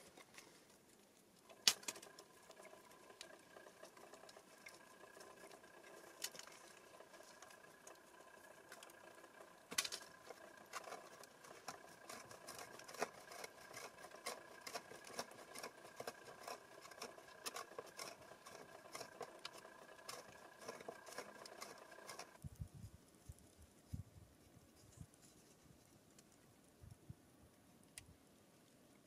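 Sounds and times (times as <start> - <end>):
faint steady hum: 0.0 - 29.0
knife scratching dry fungus: 10.1 - 22.4.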